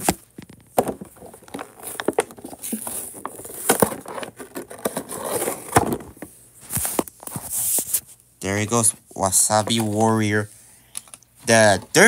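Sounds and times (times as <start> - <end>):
plastic package crackling and scraping: 0.0 - 7.9.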